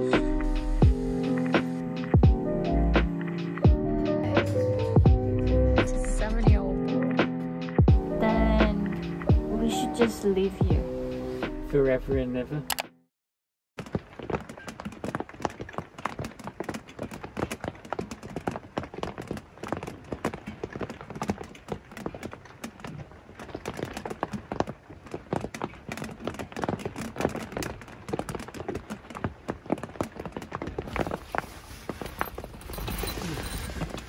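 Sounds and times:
rapid irregular tapping: 0:13.8 - 0:31.3.

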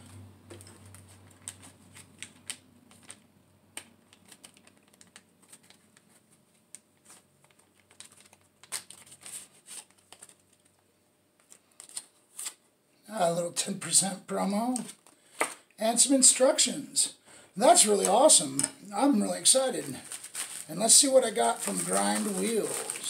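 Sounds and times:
hands handling paper and plastic: 0:00.0 - 0:10.8, 0:11.4 - 0:12.6, 0:19.8 - 0:23.0.

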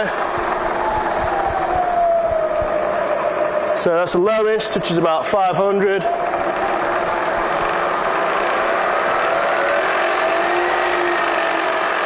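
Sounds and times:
milling machine whirring: 0:06.1 - 0:12.0.

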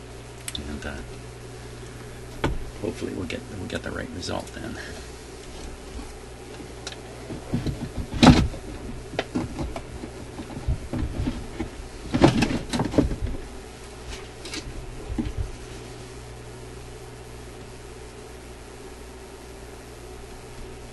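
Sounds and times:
small metal parts clunking and rattling: 0:07.3 - 0:13.4.

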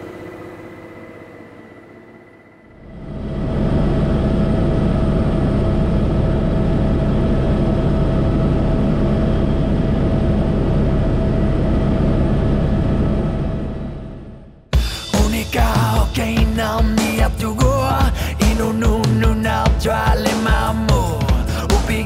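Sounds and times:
helicopter turbine and rotor drone: 0:00.0 - 0:22.0.

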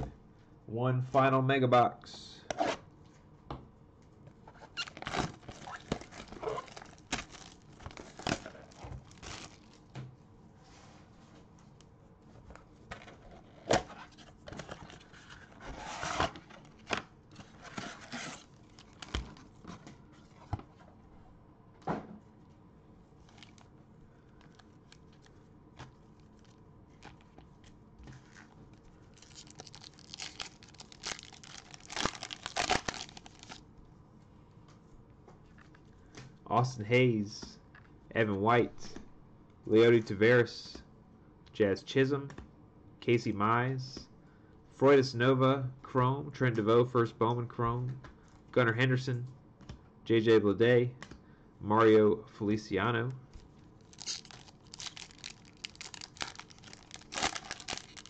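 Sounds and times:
cardboard and foil tearing: 0:04.8 - 0:09.8, 0:17.5 - 0:19.2, 0:29.1 - 0:33.6, 0:53.8 - 0:58.0.

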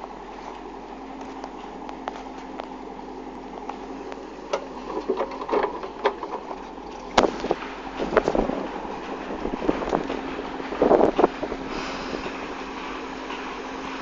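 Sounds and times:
backhoe engine running: 0:00.0 - 0:14.0
roots cracking and knocking: 0:03.6 - 0:08.6.

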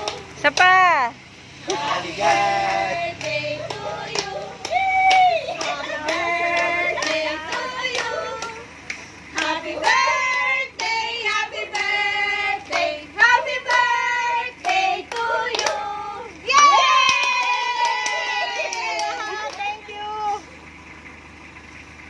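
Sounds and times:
group singing: 0:00.0 - 0:00.4, 0:01.6 - 0:16.6.

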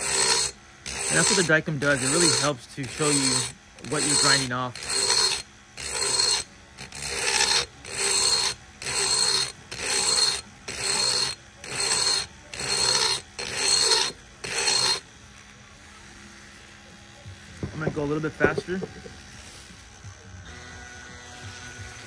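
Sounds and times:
rotary tool grinding metal: 0:00.0 - 0:22.0.

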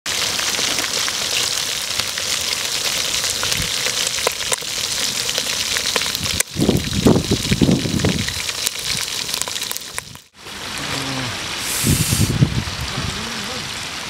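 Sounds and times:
meat deep-frying in oil: 0:00.1 - 0:10.9.

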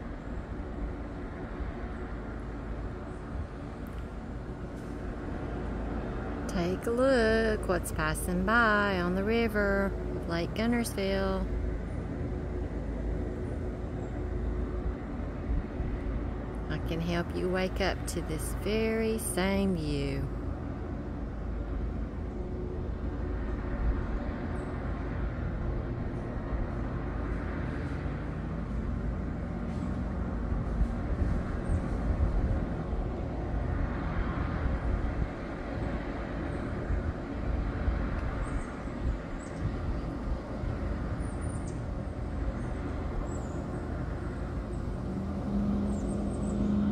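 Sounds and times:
low engine rumble: 0:00.0 - 0:46.9
hum sliding in pitch: 0:44.7 - 0:46.9.

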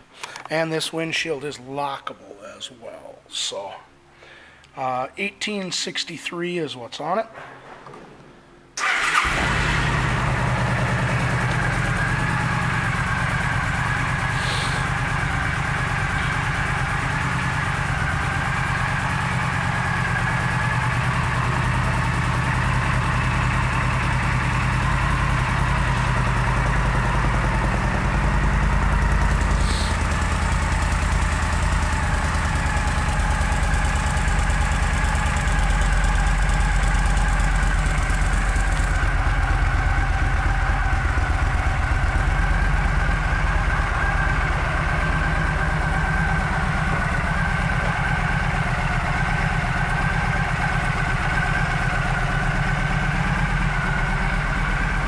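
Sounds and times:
motorcycle engine idling: 0:08.8 - 0:55.0.

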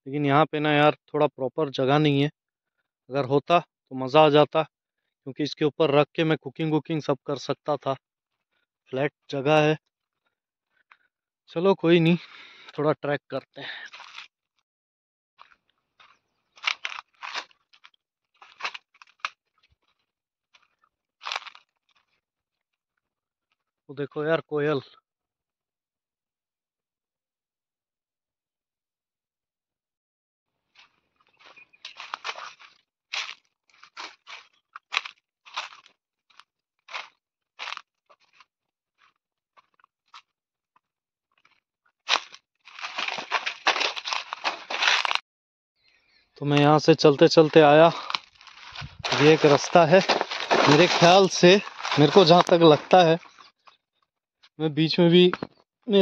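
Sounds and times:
footsteps crunching on dry leaves: 0:13.9 - 0:14.3, 0:15.4 - 0:19.3, 0:20.6 - 0:22.1, 0:30.7 - 0:39.1, 0:42.1 - 0:45.2, 0:47.4 - 0:53.5
leaves rustling: 0:42.1 - 0:45.2, 0:48.0 - 0:53.1.

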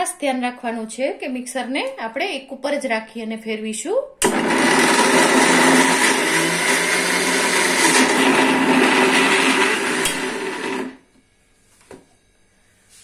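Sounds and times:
mixer grinder grinding peanuts: 0:04.2 - 0:11.0.

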